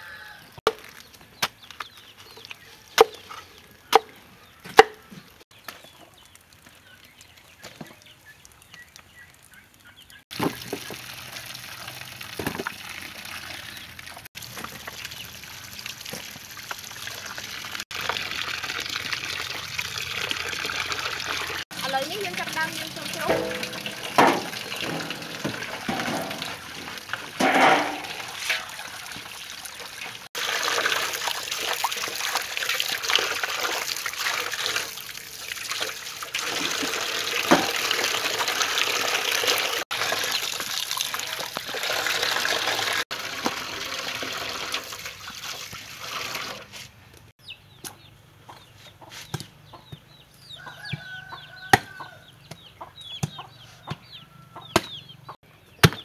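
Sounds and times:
tap water pouring into a basin: 5.6 - 46.7
sharp knocks: 23.2 - 26.5
chickens clucking: 47.4 - 55.4.

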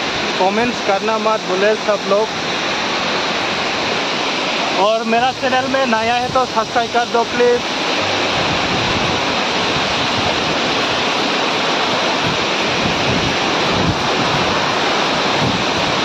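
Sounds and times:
waterfall rushing: 0.0 - 16.0
wind buffeting microphone: 7.6 - 16.0.

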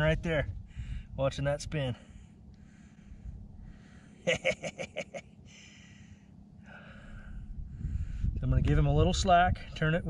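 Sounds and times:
man chuckling: 4.2 - 5.3.

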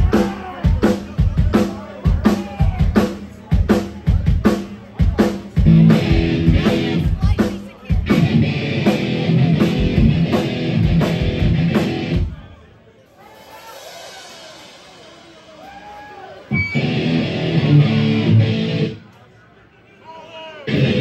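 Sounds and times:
drum kit beating: 0.0 - 12.4, 13.2 - 18.9
thrash metal band playing: 0.0 - 12.4, 13.4 - 15.7, 16.5 - 19.0, 20.7 - 21.0
distorted guitar and bass: 5.6 - 7.3, 8.0 - 12.3, 16.5 - 19.0, 20.7 - 21.0.

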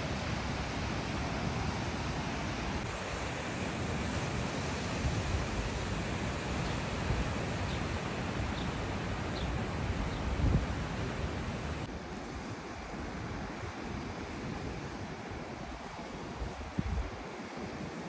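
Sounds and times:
sea surf washing: 0.0 - 18.0
wind buffeting microphone: 5.0 - 18.0.

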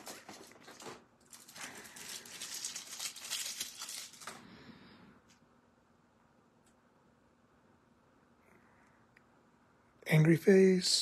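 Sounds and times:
plastic packaging crinkling: 0.0 - 4.5.

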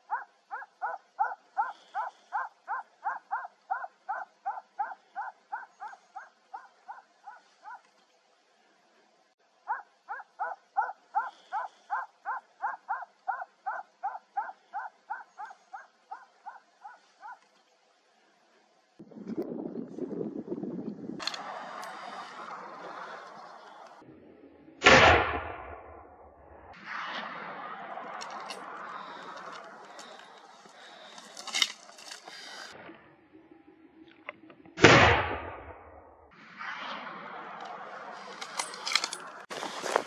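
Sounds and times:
dog barking rapidly: 0.0 - 7.9, 9.7 - 17.4.

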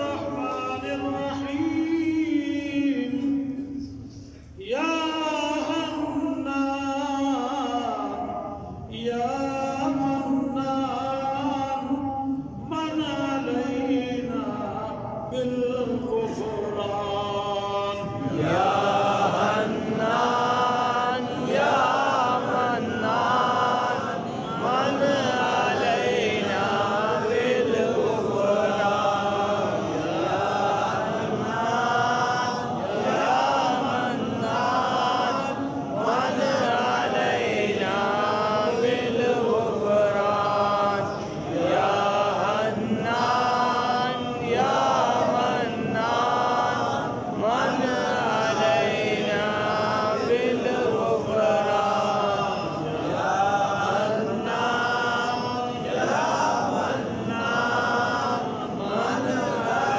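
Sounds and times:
voices chanting: 17.3 - 59.9.

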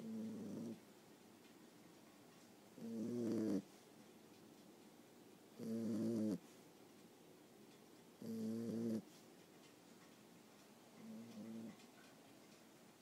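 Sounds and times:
puppy snoring: 0.0 - 0.8, 2.8 - 3.8, 5.6 - 6.5, 8.2 - 9.1, 11.0 - 11.9.

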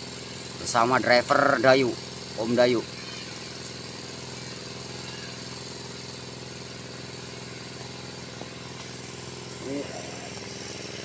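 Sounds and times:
diesel truck engine idling: 0.0 - 11.0.

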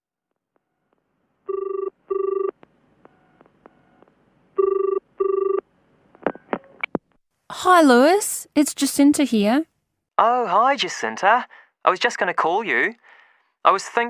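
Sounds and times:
telephone ringing: 1.5 - 2.5, 4.6 - 5.6.

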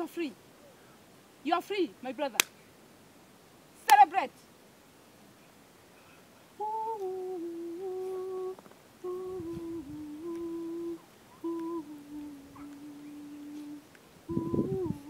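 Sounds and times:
person humming a slow tune: 6.6 - 15.0.

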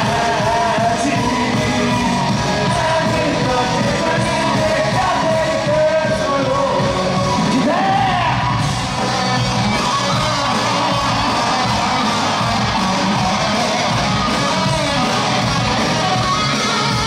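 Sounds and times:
person singing: 0.0 - 8.4
band playing pop-rock: 0.0 - 17.0
crowd yelling: 0.0 - 17.0.

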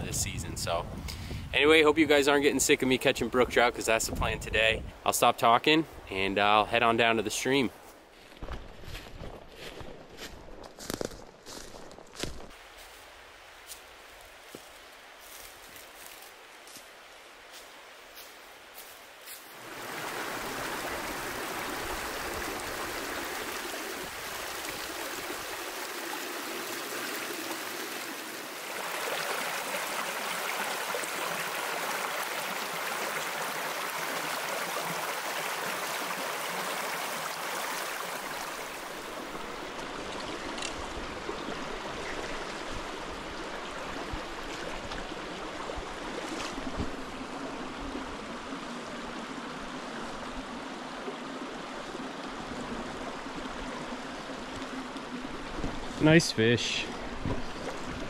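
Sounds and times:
mountain brook flowing: 12.6 - 58.0.

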